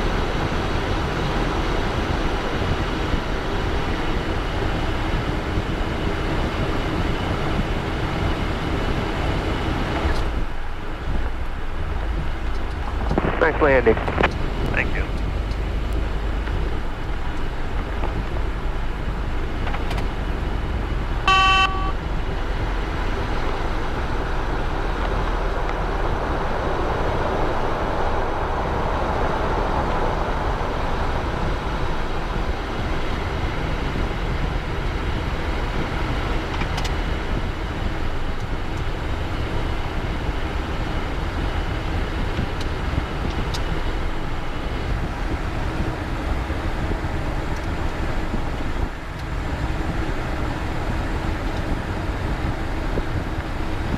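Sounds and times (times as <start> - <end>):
jet engines and airflow rushing: 0.0 - 53.9
low rumble: 9.0 - 36.4
short electronic beep: 21.3 - 22.0.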